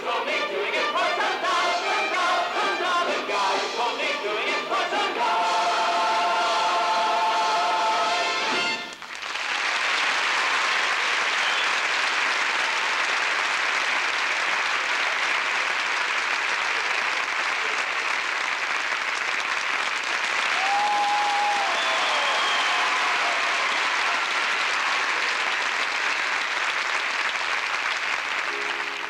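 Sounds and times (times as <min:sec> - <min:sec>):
audience applauding: 0:08.2 - 0:29.0.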